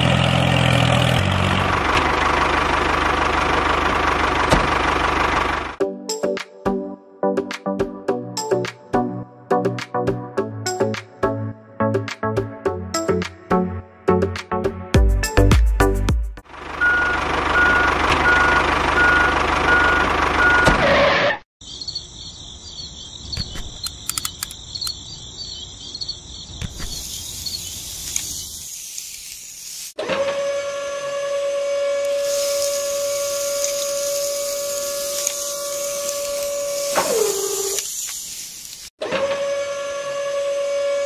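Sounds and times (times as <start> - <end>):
reversing beeper: 16.8 - 20.9
clicks: 23.4 - 25.0
small electric motor whining: 30.1 - 38.0.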